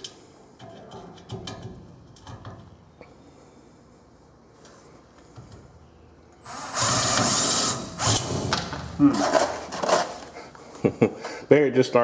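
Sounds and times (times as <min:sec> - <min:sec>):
cordless drill driving screw into steel: 0:06.4 - 0:08.4.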